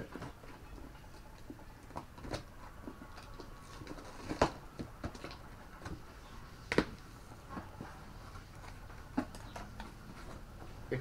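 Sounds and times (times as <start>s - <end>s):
clicks and knocks of packaging: 0.1s - 6.1s.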